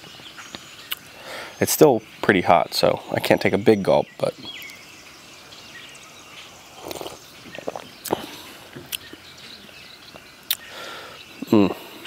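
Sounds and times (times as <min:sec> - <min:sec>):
person slurping coffee: 0:06.7 - 0:08.5
lips and cup clicking: 0:06.8 - 0:08.3.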